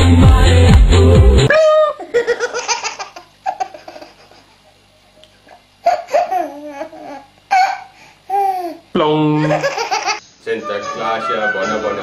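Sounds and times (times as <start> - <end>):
high-pitched laughter: 1.5 - 4.6.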